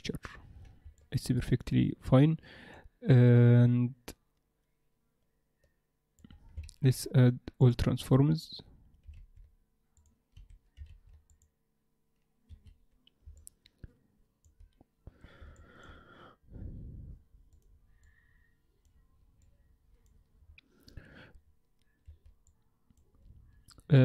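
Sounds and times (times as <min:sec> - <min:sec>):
person breathing: 0:02.4 - 0:03.0, 0:15.0 - 0:18.8, 0:20.6 - 0:22.1.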